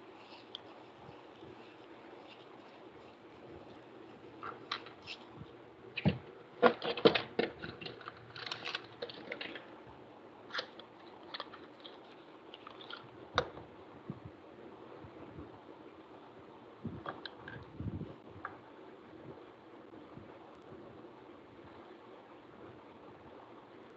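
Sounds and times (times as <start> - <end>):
plastic marker clicks and rattles: 6.6 - 9.7.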